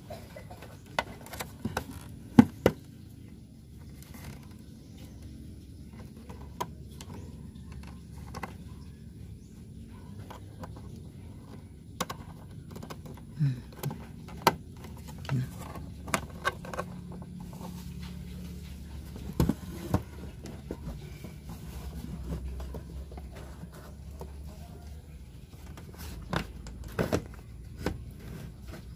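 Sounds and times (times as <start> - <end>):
cable handling clicks and knocks: 3.8 - 8.8, 10.2 - 18.1.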